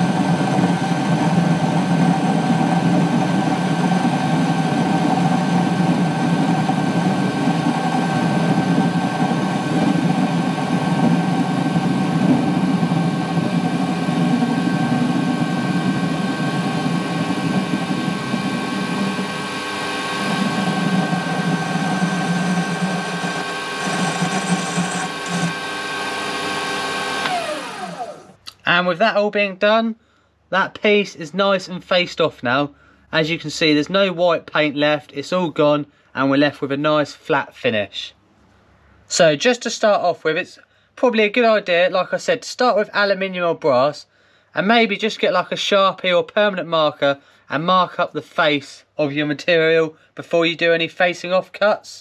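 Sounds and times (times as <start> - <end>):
lathe motor humming with high whine: 0.0 - 28.4.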